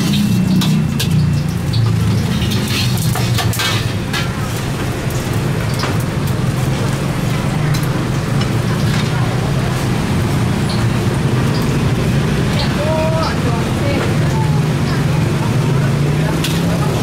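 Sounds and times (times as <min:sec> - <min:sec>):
metal utensils clinking on a wok: 0:00.0 - 0:09.4, 0:16.3 - 0:17.0.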